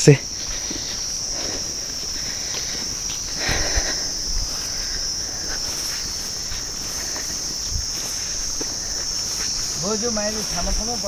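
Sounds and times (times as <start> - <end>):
insects droning: 0.0 - 11.0
soft low thumps: 3.2 - 9.8.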